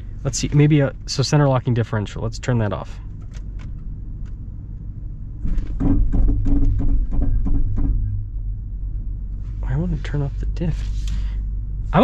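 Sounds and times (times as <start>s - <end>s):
vehicle engine rumbling: 0.0s - 12.0s
rhythmic brake knocking: 5.4s - 9.9s.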